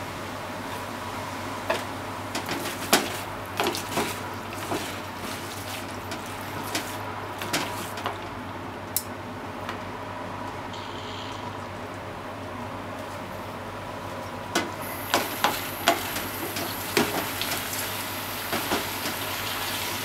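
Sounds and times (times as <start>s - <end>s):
stir-fry sizzling in pan: 0.0s - 8.4s, 14.6s - 20.0s.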